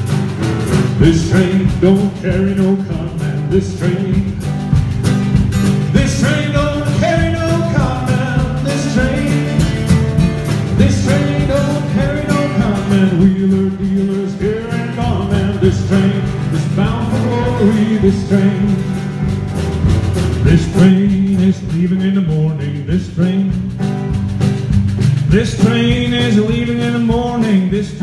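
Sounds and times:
acoustic guitars strumming: 0.0s - 28.0s
man singing: 0.9s - 4.8s, 5.7s - 19.5s, 20.3s - 24.2s, 25.2s - 28.0s.

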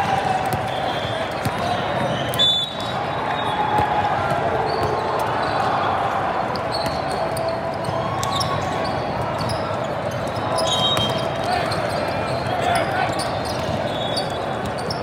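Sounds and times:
many voices in a hall: 0.0s - 15.0s
balls being hit and bouncing: 6.7s - 8.7s.

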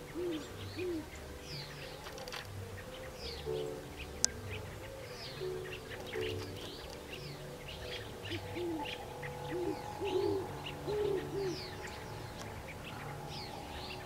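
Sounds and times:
small birds chirping: 0.0s - 14.0s
owl hooting: 7.4s - 14.0s.

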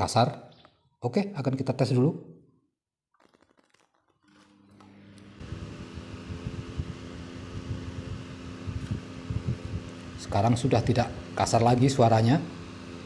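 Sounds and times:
electric desk fan humming: 4.5s - 13.0s.

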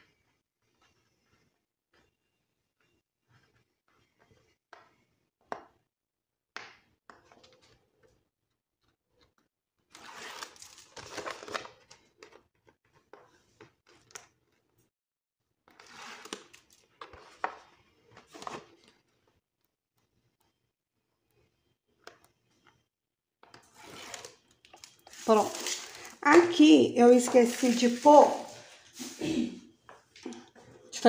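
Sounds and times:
paper and plastic rustling: 10.3s - 12.4s, 15.8s - 19.1s, 23.6s - 29.3s.

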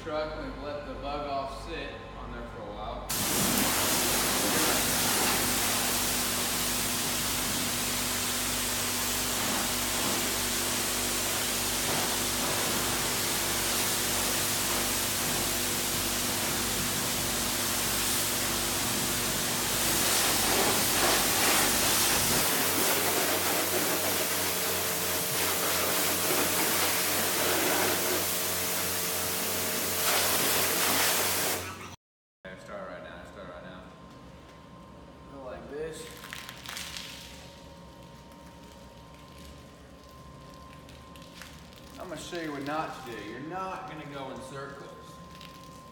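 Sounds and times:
pressure washer spraying water: 3.1s - 31.9s.

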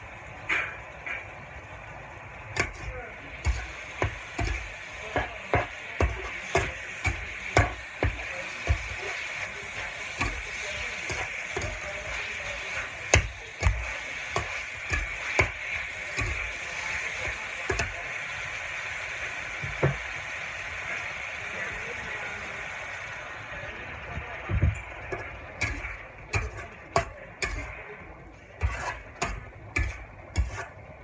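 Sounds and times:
meat sizzling in a wok: 0.0s - 31.0s
metal spatula scraping wok: 2.6s - 18.0s, 25.1s - 30.9s.

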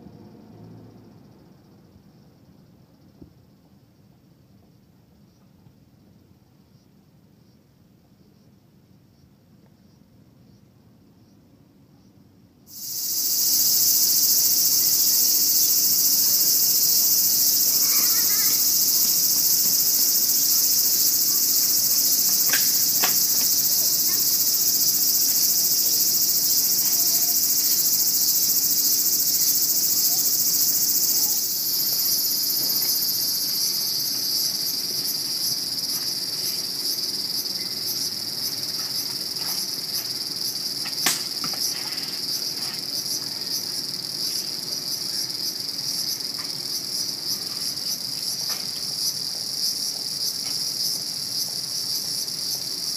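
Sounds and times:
high-pitched insect chorus: 0.1s - 11.4s, 12.7s - 52.9s.

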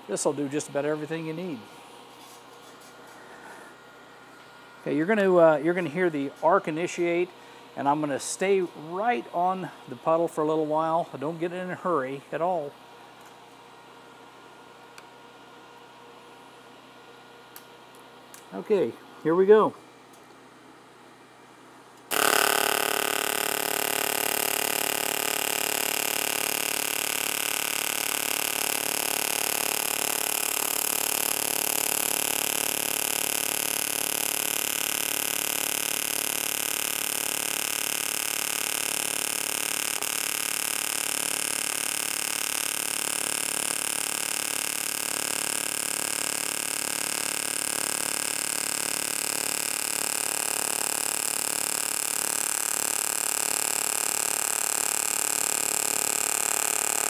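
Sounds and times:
welding arc buzzing: 22.1s - 57.0s.

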